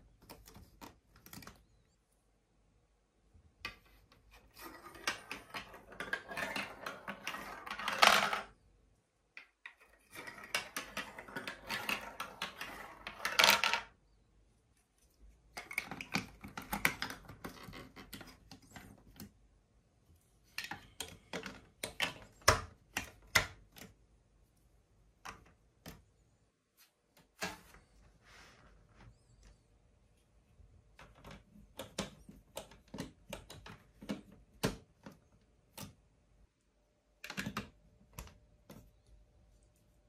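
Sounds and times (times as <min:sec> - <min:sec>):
ball rattling down marble run: 0:04.6 - 0:08.5, 0:10.1 - 0:13.9.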